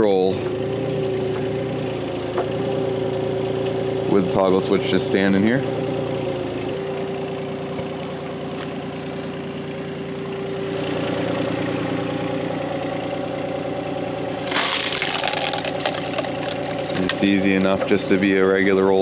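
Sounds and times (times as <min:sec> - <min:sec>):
diesel engine idling: 0:00.0 - 0:19.0.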